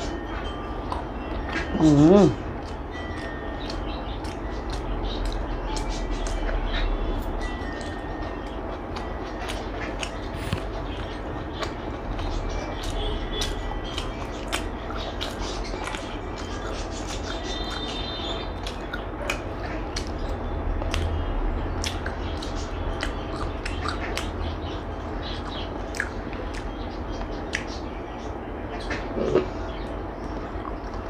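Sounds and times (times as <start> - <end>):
person chewing food: 0.0 - 27.8
steady low hum: 0.0 - 31.0
mouth clicks and smacks: 7.8 - 27.8.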